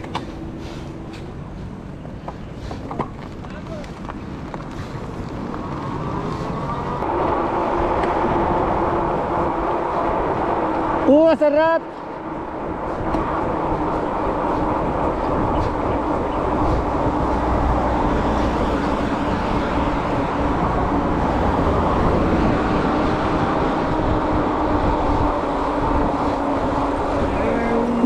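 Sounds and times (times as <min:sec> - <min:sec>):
tyre rumble on asphalt: 0:02.7 - 0:09.1
wind on microphone: 0:03.2 - 0:11.2, 0:11.8 - 0:28.0.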